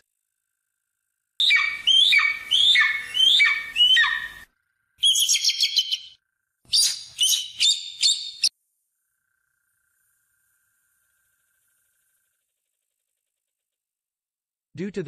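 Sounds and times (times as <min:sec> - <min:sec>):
eagle crying: 0:01.4 - 0:04.4.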